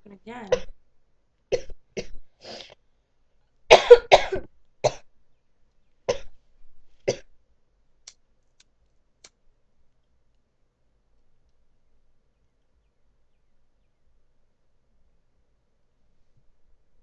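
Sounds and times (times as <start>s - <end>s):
woman coughing: 0.5s - 0.7s, 3.7s - 5.0s.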